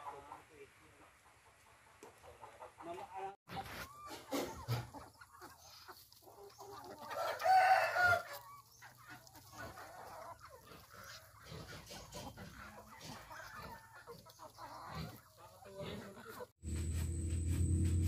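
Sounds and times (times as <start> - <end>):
chickens clucking and pecking: 0.0 - 18.0
rooster crowing: 7.2 - 8.3.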